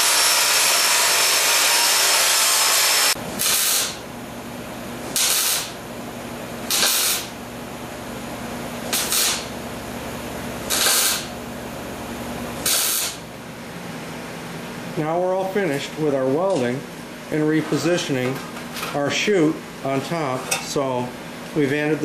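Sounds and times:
angle grinder cutting steel: 0.0s - 4.0s, 10.7s - 11.3s
welder crackling: 0.0s - 4.0s, 5.1s - 5.8s, 6.6s - 7.4s, 8.8s - 9.6s, 10.6s - 11.5s, 12.4s - 13.3s
steady welder hum: 0.0s - 22.0s.

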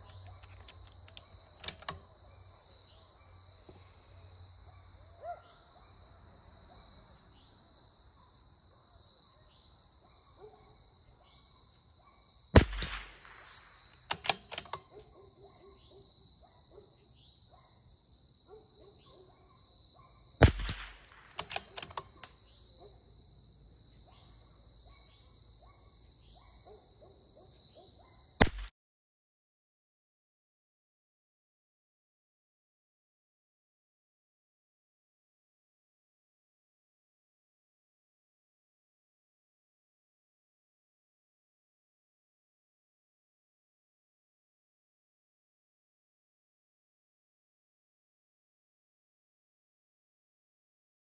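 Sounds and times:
rifle bolt metallic clicks: 0.0s - 2.1s, 12.6s - 15.1s, 20.4s - 22.4s, 28.4s - 28.7s
rifle shot crack: 12.6s - 14.8s, 20.4s - 22.2s, 28.4s - 28.7s.

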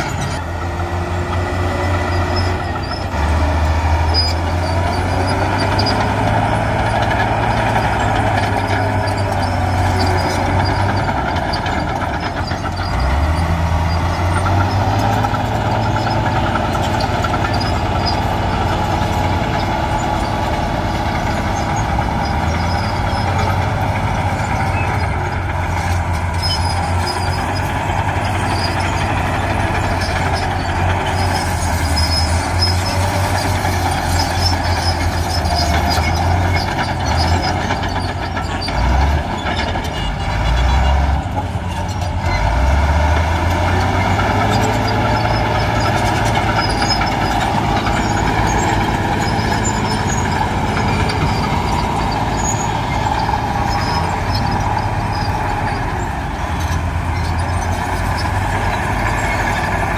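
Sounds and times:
heavy machinery diesel engines rumbling: 0.0s - 59.9s.

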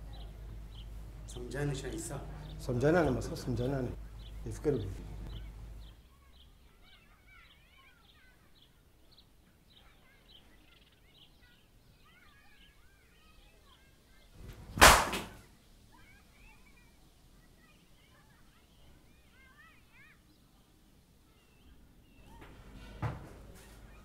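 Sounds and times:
faint bird chirping: 0.0s - 24.0s
loud sharp bang: 14.7s - 15.4s.

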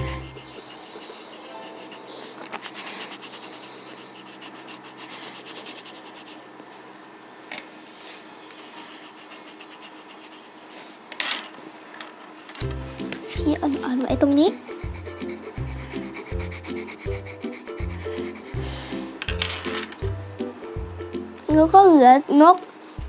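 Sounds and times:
pencil scribbling on paper: 0.0s - 6.4s, 8.6s - 10.6s, 14.5s - 18.6s.

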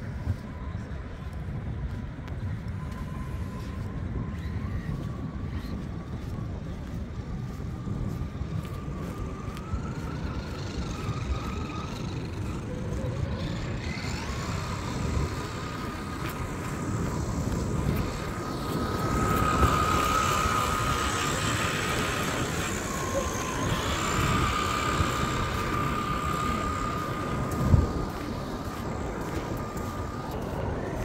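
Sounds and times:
rc car motor whining: 8.4s - 31.0s.

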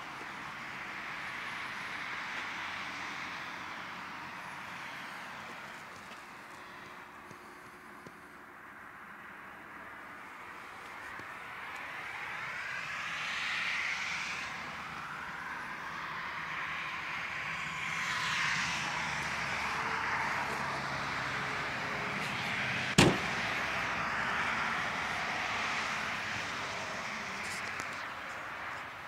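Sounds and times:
car tailgate slamming shut: 23.0s - 23.3s.

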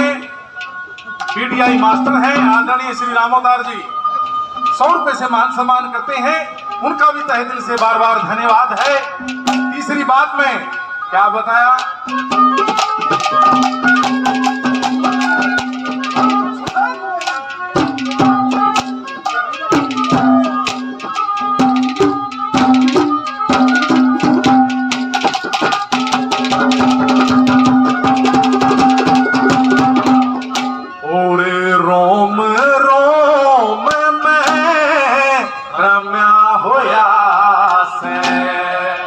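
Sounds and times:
man singing: 0.0s - 39.0s
fast hand drum strokes: 1.0s - 2.7s, 8.7s - 10.1s, 11.8s - 31.0s
melody of long held notes: 25.9s - 32.5s.

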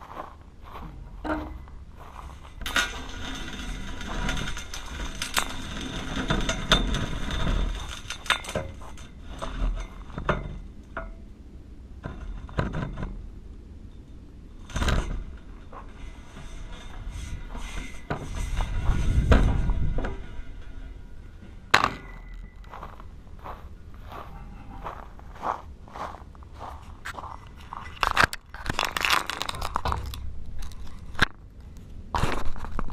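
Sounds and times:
low rumble: 0.0s - 32.9s
pole knocking and rattling: 0.8s - 11.3s, 12.0s - 13.4s, 14.0s - 24.2s.

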